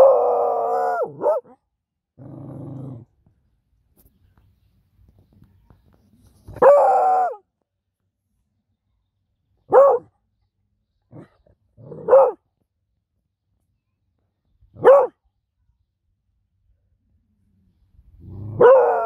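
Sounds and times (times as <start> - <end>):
puppy barking: 0.9 - 1.6, 9.7 - 10.1, 11.9 - 12.4, 14.8 - 15.2.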